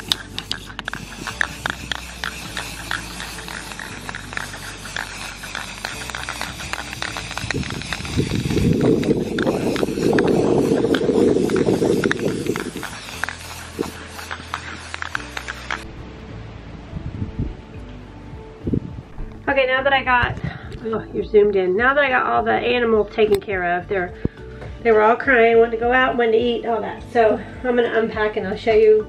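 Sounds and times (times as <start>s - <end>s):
wind buffeting microphone: 6.0s - 13.2s, 16.8s - 21.1s.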